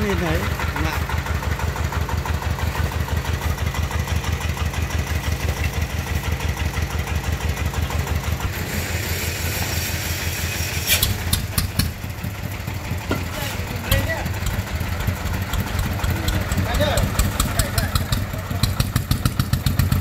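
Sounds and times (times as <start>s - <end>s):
diesel engine chugging: 0.0s - 20.0s.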